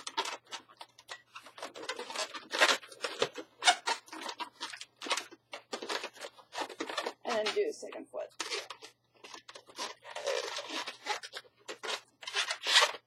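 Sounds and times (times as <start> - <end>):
balloons rubbing and squeaking: 0.0 - 13.0.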